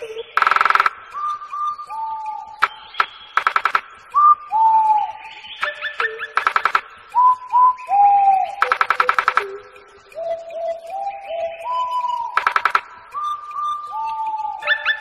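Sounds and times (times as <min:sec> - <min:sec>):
birds whistling: 0:00.0 - 0:15.0
rapid rattling clicks: 0:00.4 - 0:01.0, 0:02.6 - 0:04.0, 0:06.4 - 0:07.0, 0:08.6 - 0:09.6, 0:12.4 - 0:13.0.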